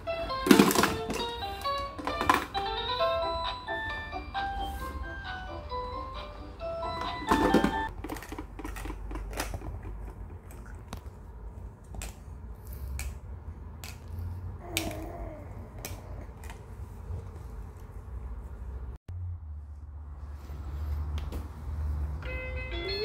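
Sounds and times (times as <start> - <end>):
plastic toys clacking: 0.4 - 2.7, 7.2 - 10.7
baby vocal sound: 14.4 - 16.5
toy electronic tune: 22.2 - 23.0.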